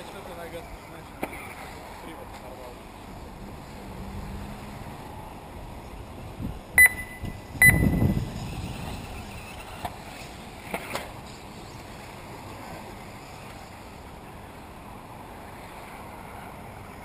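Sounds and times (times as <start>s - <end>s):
short high electronic beeps: 6.8s - 8.2s.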